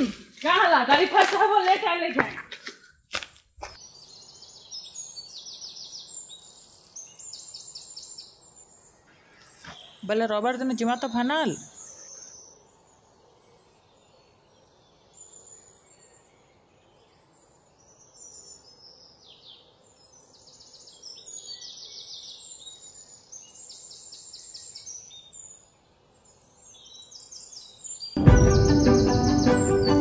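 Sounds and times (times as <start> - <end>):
birds singing: 2.8 - 30.0.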